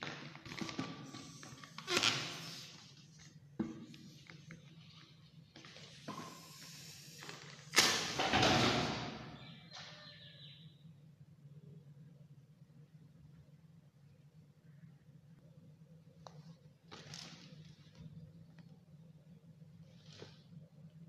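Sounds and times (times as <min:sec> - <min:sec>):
balloon air rushing out: 0:01.2 - 0:02.8.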